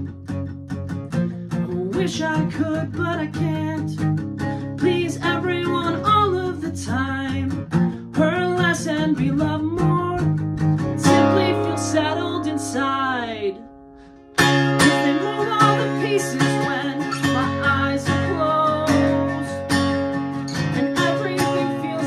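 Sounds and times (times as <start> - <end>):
strummed acoustic guitar: 0.0 - 22.0
person singing: 11.0 - 13.8, 14.4 - 22.0.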